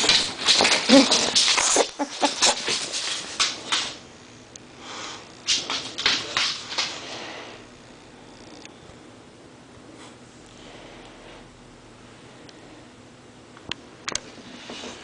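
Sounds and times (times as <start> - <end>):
scratchy clicks and rustles: 0.0 - 4.0.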